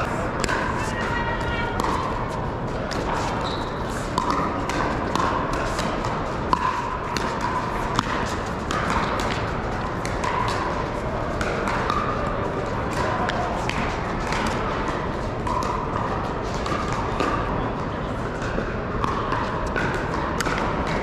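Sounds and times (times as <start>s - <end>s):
background chatter of many people: 0.0s - 21.0s
paddles striking plastic balls: 4.2s - 10.8s.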